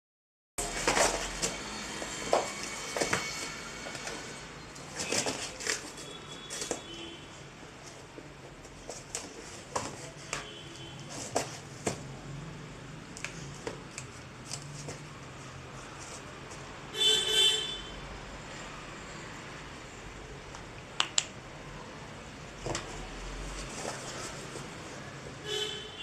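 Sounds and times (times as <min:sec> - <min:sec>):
cardboard scraping and tearing: 0:04.9 - 0:06.8.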